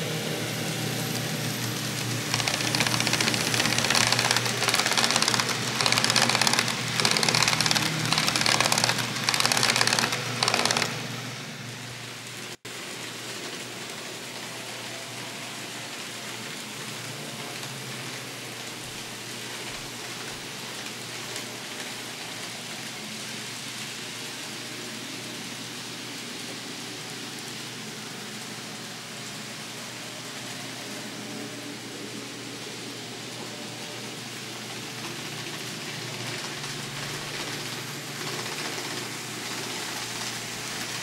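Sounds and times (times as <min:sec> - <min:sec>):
model train wheels clattering: 0:01.7 - 0:11.1, 0:34.7 - 0:41.0.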